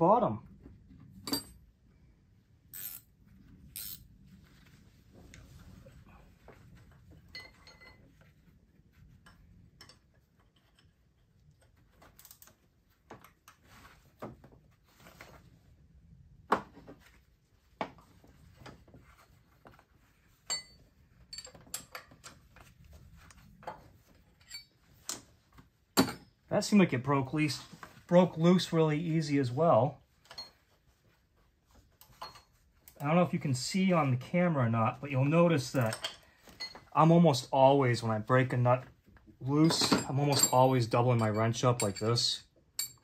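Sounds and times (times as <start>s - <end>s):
metal wrenches clinking: 1.2s - 1.6s, 7.3s - 8.2s, 20.4s - 22.4s, 24.3s - 25.2s, 35.8s - 36.8s, 39.5s - 43.0s.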